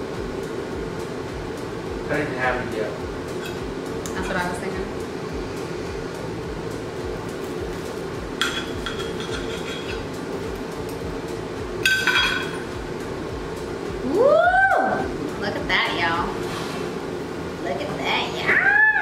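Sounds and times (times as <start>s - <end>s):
air conditioner humming: 0.0s - 19.0s
knife and fork clinking on plate: 8.4s - 10.1s.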